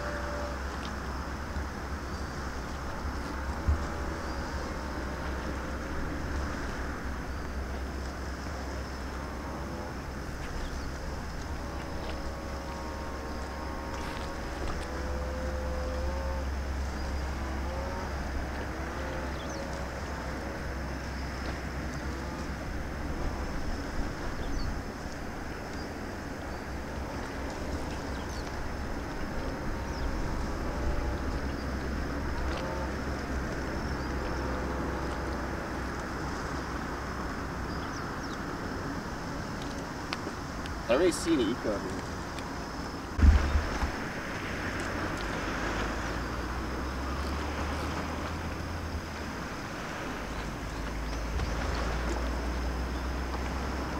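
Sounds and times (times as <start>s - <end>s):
seashore noise: 0.0s - 53.9s
wind rumbling on microphone: 0.0s - 53.9s
brief low thump: 43.2s - 44.1s.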